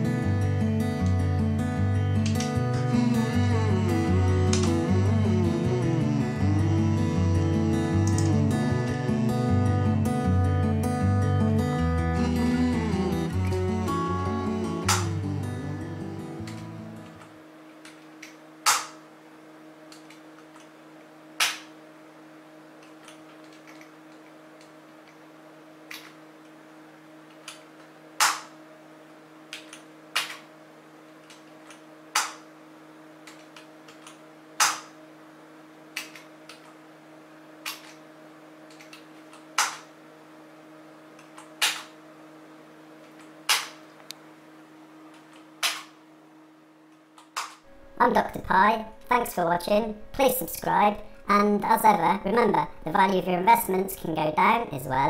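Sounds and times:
stepper motor humming: 0:00.0 - 0:17.2.

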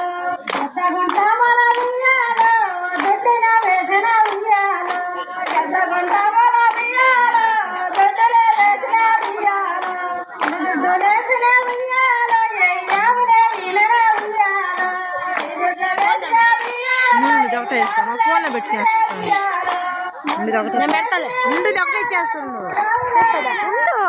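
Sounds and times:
women singing folk song: 0:00.0 - 0:21.8
rhythmic handclaps: 0:00.0 - 0:23.4.

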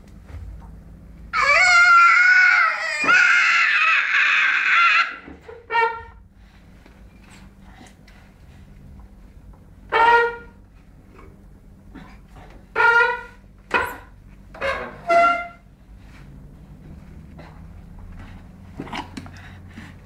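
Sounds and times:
low steady hum: 0:00.0 - 0:20.0
baby squealing: 0:01.4 - 0:05.2.

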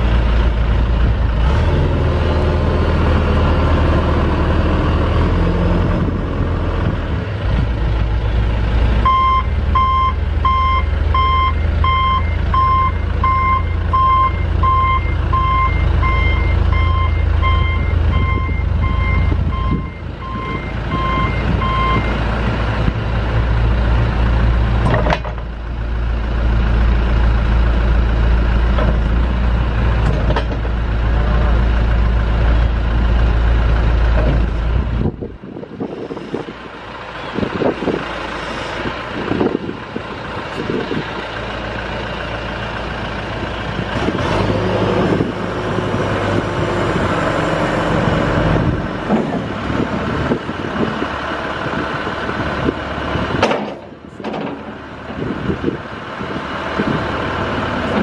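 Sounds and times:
diesel backhoe engine running: 0:00.0 - 0:58.0
backup alarm beeping: 0:09.0 - 0:22.1
sharp clunk: 0:53.4 - 0:54.8.

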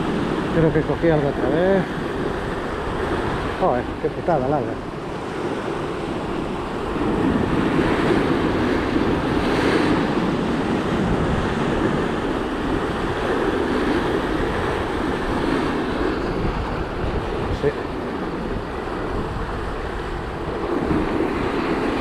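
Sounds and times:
surf breaking over rocks: 0:00.0 - 0:22.0
wind buffeting microphone: 0:00.0 - 0:22.0.

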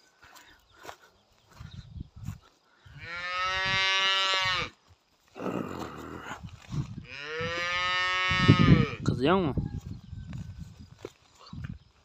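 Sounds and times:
cattle mooing: 0:03.0 - 0:04.7, 0:07.0 - 0:09.0.

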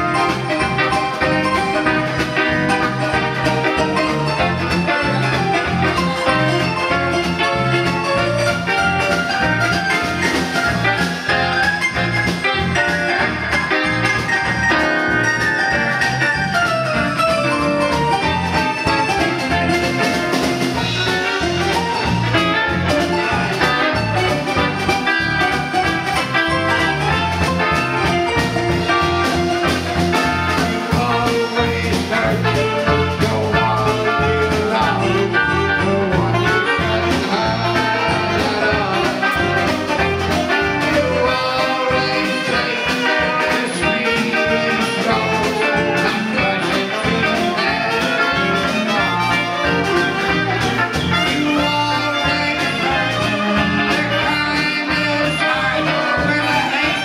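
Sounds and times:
live blues band playing: 0:00.0 - 0:57.0
saxophone: 0:00.0 - 0:57.0
man singing: 0:28.7 - 0:57.0.

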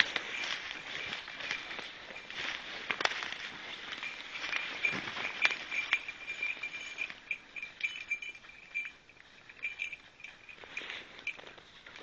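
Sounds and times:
footsteps crunching dry leaves: 0:00.0 - 0:08.2
dog collar ringing: 0:03.3 - 0:11.6.

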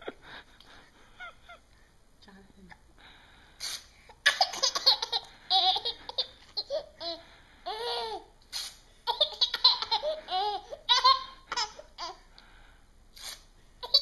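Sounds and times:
baby laughing: 0:04.2 - 0:08.3, 0:09.0 - 0:12.2.

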